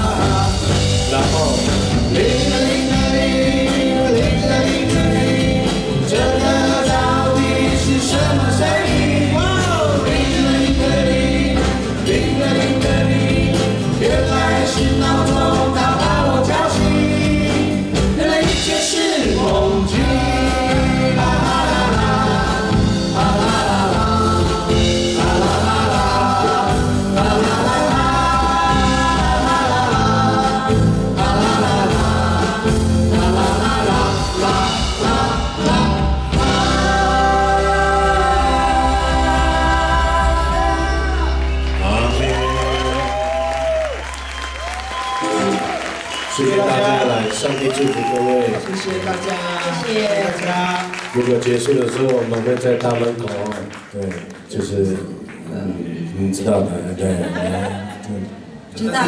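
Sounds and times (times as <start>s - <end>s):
person singing: 0.0s - 44.0s
live band playing: 0.0s - 53.6s.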